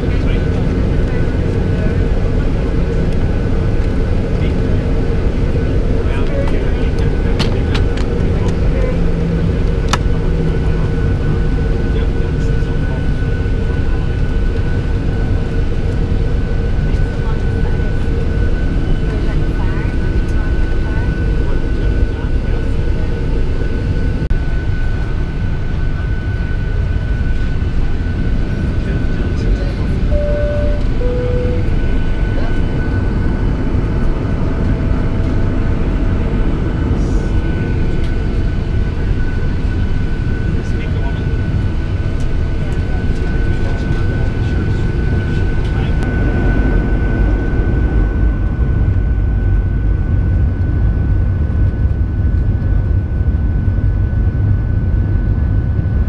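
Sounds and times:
airplane cabin drone: 0.0s - 56.0s
jet engines low rumble: 0.0s - 56.0s
steady whine: 0.0s - 56.0s
high whine: 23.3s - 49.9s.

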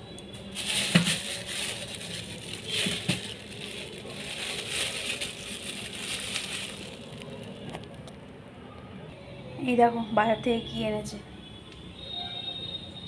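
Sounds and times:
plastic bags crinkling: 0.3s - 8.0s.

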